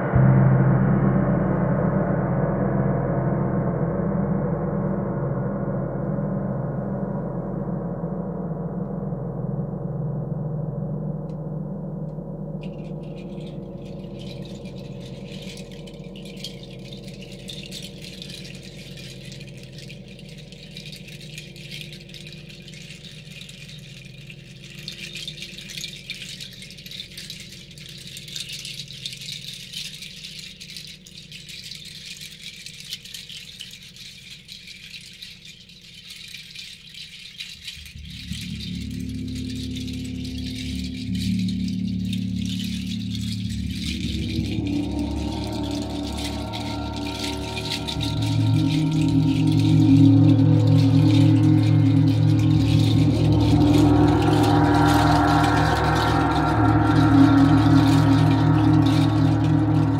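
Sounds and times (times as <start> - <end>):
low gong hum: 0.0 - 25.8, 37.9 - 59.9
handheld rattle shaken: 12.6 - 59.9.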